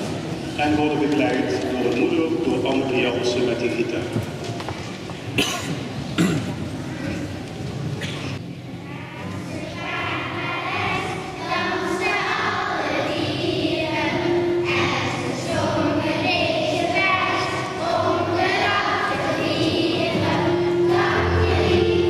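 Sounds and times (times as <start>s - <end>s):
acoustic guitar: 5.4s - 22.0s
children singing: 8.8s - 22.0s.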